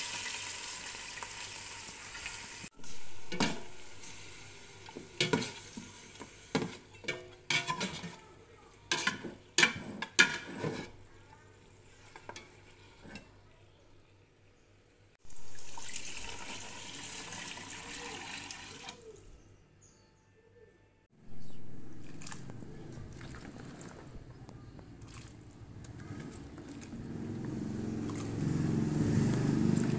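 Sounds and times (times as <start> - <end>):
water hissing in hot pot: 0.0 - 6.6, 15.3 - 19.0
light sizzle of frying: 0.0 - 19.2
metal spatula scraping a pot: 5.2 - 8.3, 8.9 - 11.1.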